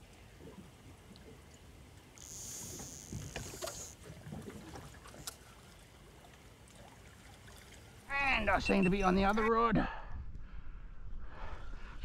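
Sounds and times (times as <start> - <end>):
water lapping against hull: 0.0 - 8.1.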